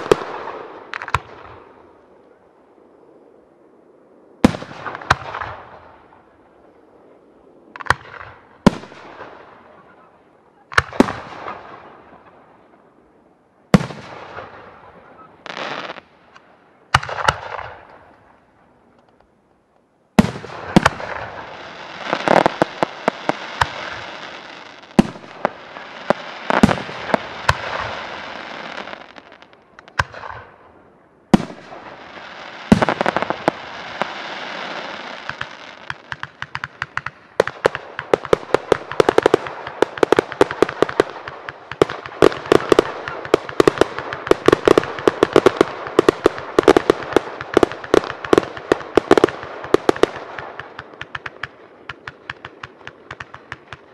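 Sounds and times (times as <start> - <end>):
crackling fizz of firework stars: 13.8 - 18.4, 20.2 - 30.5, 31.4 - 53.9
firework shells bursting: 20.2 - 30.5, 31.4 - 53.9.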